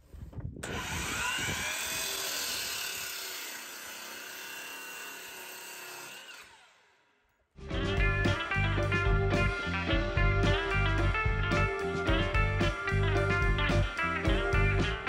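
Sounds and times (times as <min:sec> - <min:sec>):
miter saw cutting wood: 0:00.6 - 0:07.2.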